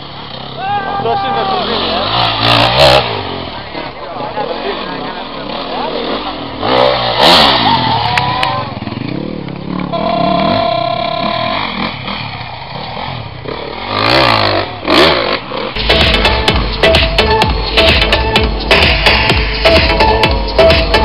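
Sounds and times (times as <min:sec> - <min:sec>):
dirt bike engines revving: 0:00.0 - 0:21.0
electronic music with steady beat: 0:15.8 - 0:21.0.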